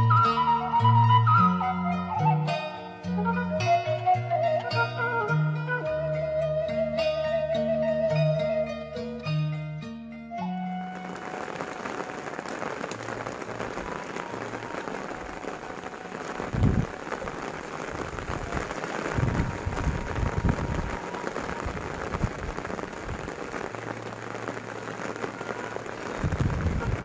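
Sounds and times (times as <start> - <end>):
heavy rain falling: 10.6 - 27.0
low rumbles: 11.3 - 27.0.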